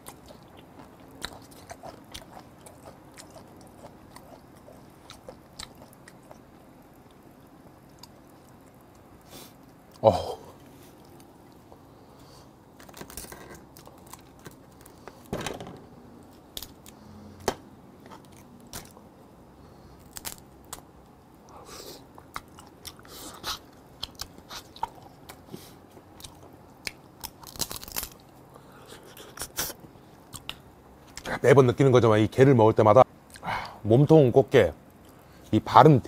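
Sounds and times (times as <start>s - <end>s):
wet chewing: 0.0s - 10.0s
crab shell cracking: 26.9s - 28.3s.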